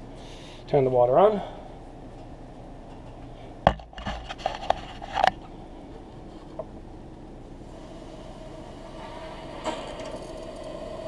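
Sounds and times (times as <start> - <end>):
low background hum: 0.0 - 11.0
sharp knocks and clicks: 3.7 - 4.2.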